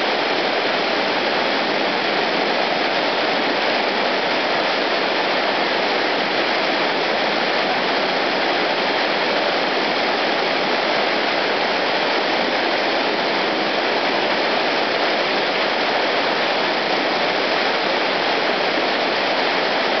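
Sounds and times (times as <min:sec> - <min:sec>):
river rapids rushing: 0:00.0 - 0:20.0.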